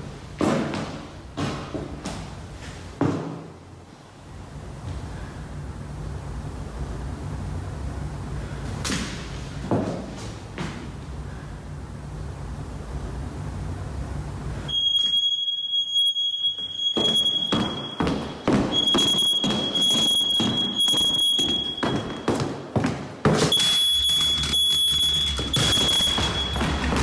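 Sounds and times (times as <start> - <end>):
smoke alarm piercing tone: 14.7 - 22.5, 23.5 - 27.0
alarm thudding on wooden floor: 14.7 - 22.6, 23.3 - 27.0
knocks and handling noise: 24.4 - 27.0.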